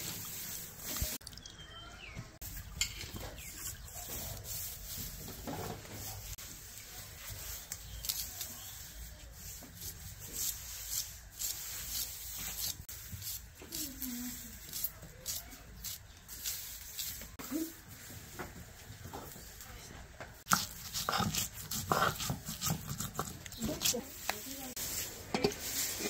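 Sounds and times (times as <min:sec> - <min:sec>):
straw fire crackling: 0:00.0 - 0:01.3, 0:02.4 - 0:19.8, 0:20.4 - 0:26.0
knife cutting shallots: 0:07.5 - 0:08.7, 0:09.5 - 0:17.2, 0:20.5 - 0:24.5.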